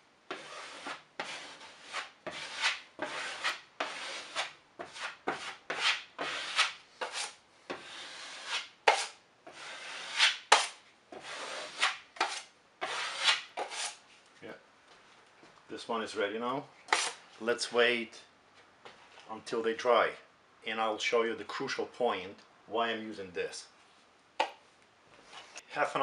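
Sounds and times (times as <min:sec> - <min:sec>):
taping knife scraping drywall: 0:00.3 - 0:14.0, 0:16.8 - 0:17.2.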